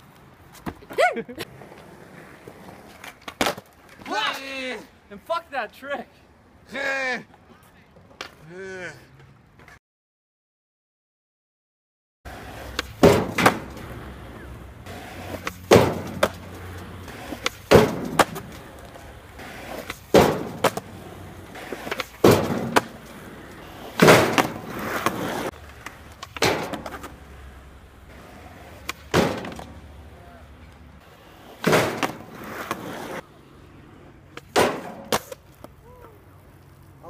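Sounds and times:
skateboard wheels rolling on asphalt: 0.0 - 9.8, 12.3 - 37.0
skateboard scraping along tub edge: 0.8 - 4.5, 12.3 - 37.0
skateboard clacks and bangs: 12.7 - 27.3, 28.8 - 29.8, 31.6 - 33.2, 34.4 - 35.4.

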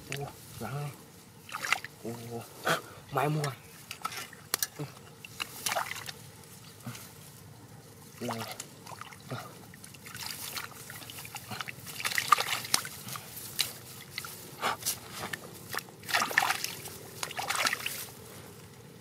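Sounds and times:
hands splashing in muddy water: 5.3 - 6.2, 8.2 - 14.3, 15.1 - 18.0.

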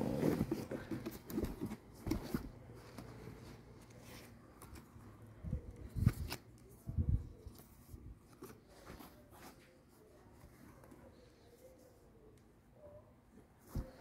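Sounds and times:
cardboard box rustling: 0.0 - 4.7.

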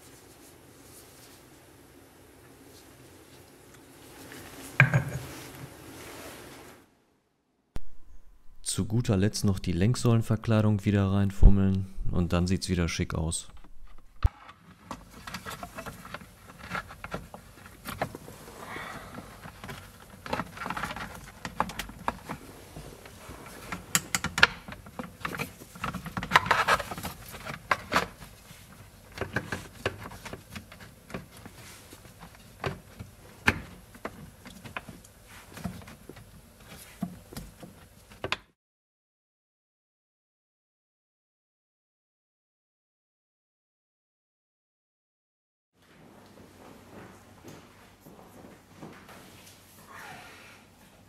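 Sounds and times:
plastic rubbing on plastic: 13.7 - 38.2.

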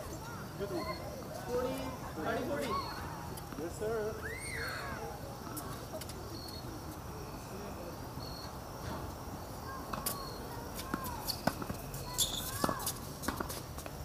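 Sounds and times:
ball bouncing on hard court: 10.8 - 13.9.

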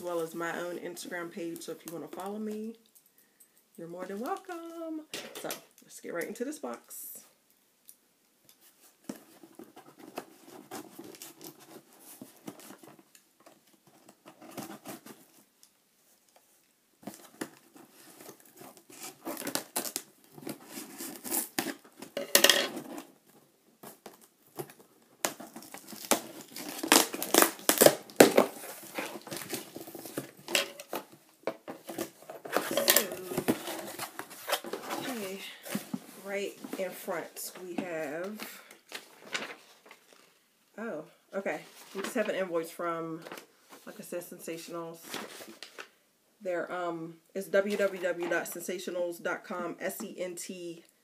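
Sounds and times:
packing tape tearing: 18.2 - 23.1, 23.8 - 31.1
cardboard scraping and rustling: 25.4 - 37.6.

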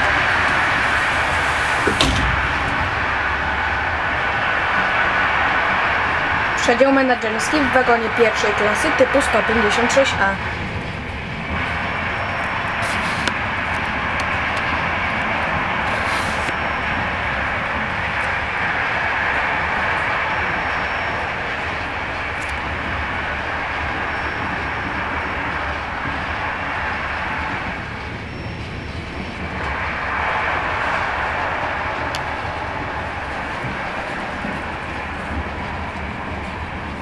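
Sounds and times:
train running hiss and rumble: 0.0 - 37.0.

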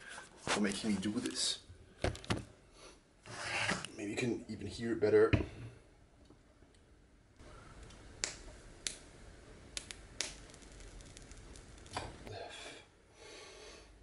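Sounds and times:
sharp crackling pops: 7.7 - 12.3.

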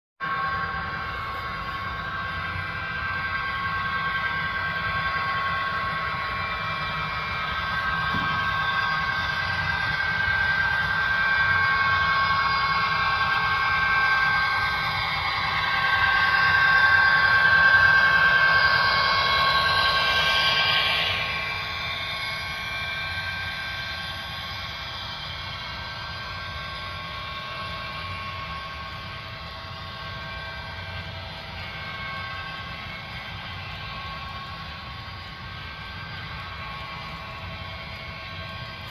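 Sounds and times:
model locomotive whine: 0.2 - 38.9
model railcars rolling along track: 0.2 - 38.9.

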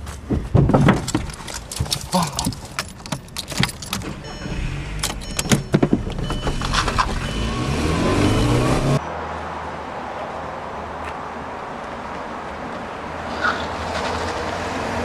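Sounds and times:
outdoor background: 0.0 - 15.0
keys rattling in ignition: 0.9 - 7.3
car engine accelerating: 4.3 - 9.0.

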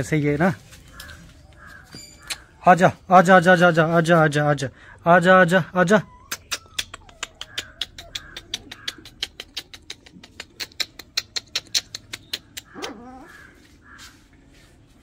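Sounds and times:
puppies whimpering: 5.2 - 11.2, 12.0 - 13.7
puppy yelp: 5.9 - 9.0, 12.6 - 13.6.

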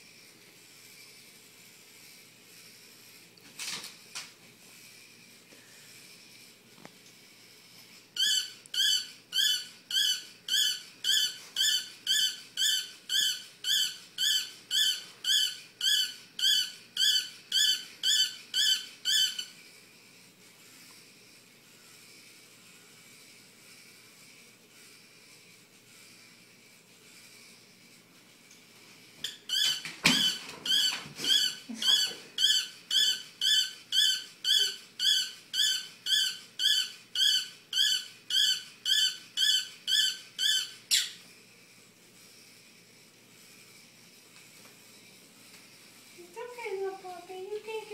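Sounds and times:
robot toy high squeaky chirps: 8.2 - 19.5, 29.3 - 41.2.

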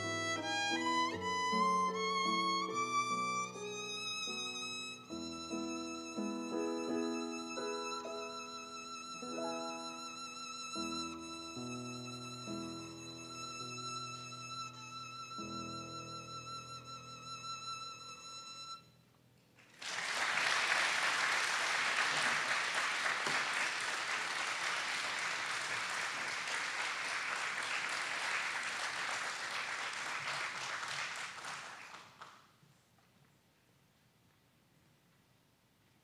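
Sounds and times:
solo violin with vibrato: 0.0 - 19.0
audience applauding: 19.6 - 32.5.

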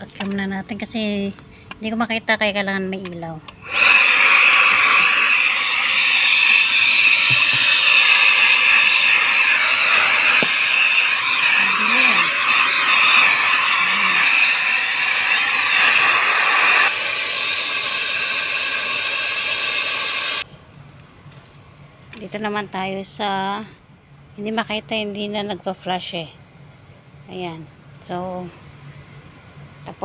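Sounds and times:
handheld vacuum cleaner whining: 3.6 - 20.4.

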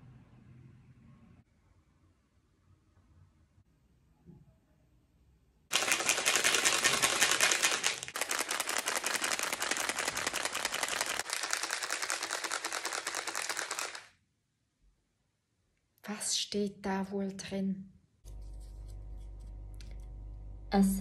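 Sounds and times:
fast rattle of dry clicks: 5.7 - 14.1.

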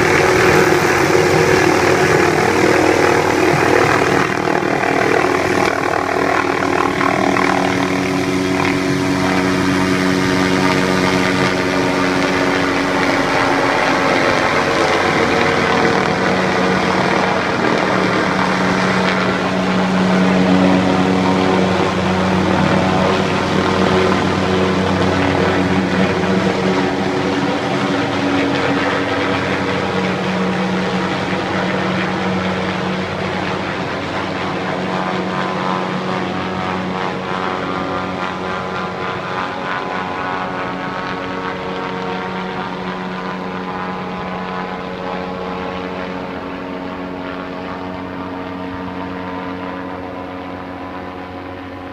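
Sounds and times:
helicopter rotor and engine drone: 0.0 - 51.9.

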